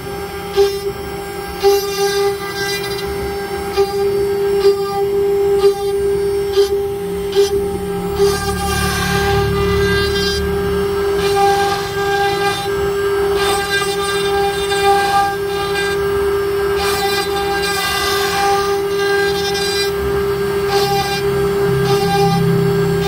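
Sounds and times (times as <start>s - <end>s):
bit cutting wood hissing: 0.0s - 23.0s
router spindle whining: 0.0s - 23.0s.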